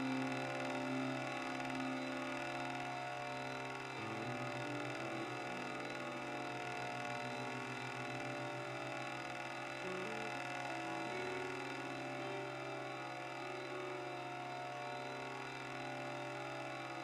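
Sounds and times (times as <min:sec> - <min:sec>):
slow droning guitar music: 0:00.0 - 0:17.0.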